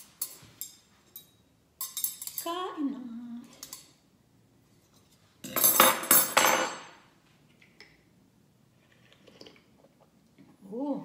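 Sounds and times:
metal cutlery clinking: 0.0 - 2.5, 4.9 - 7.0.

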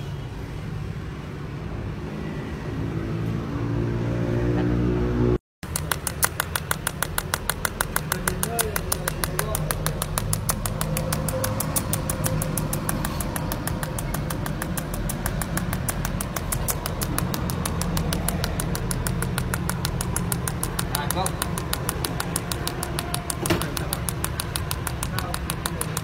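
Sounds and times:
welding arc popping in pulses: 5.6 - 26.0.

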